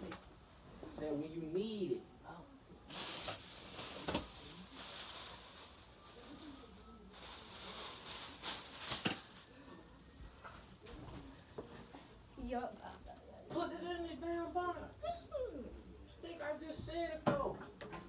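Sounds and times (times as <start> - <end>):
faint voices: 2.0 - 18.0
rustling and handling noise: 2.9 - 12.3.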